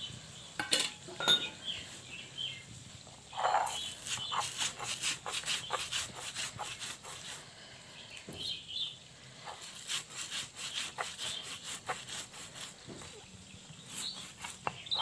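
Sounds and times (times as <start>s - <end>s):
stone rasping on stone: 3.3s - 7.4s, 9.4s - 15.0s.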